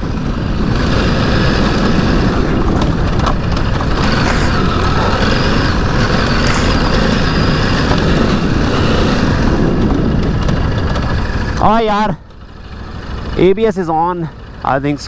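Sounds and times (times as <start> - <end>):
wind rumble: 0.0 - 13.4
motorcycle engine running: 0.0 - 15.0.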